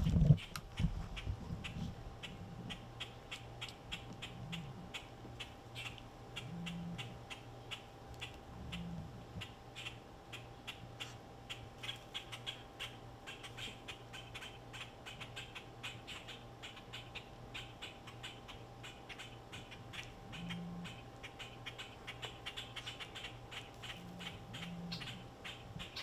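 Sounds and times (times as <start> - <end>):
low steady hum: 0.0 - 26.0
high chirps of small animals: 11.5 - 26.0.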